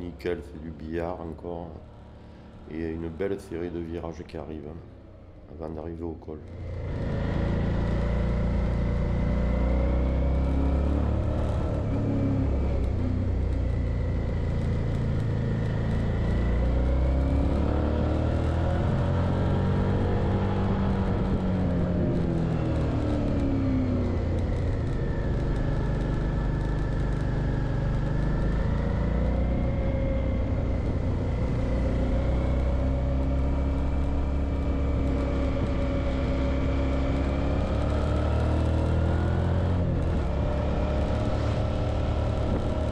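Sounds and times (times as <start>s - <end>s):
motorcycle engine revving: 6.4s - 42.9s.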